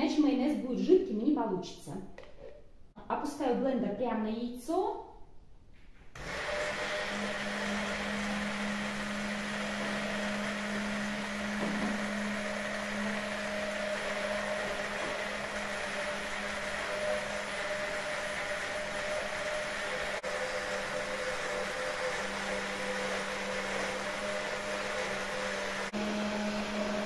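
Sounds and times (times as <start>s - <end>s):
hand blender motor running: 6.2s - 27.0s.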